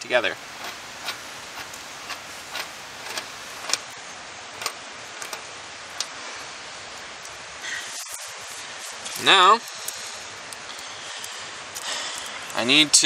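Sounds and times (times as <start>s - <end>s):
nut turning on threaded spindle: 0.4s - 6.2s.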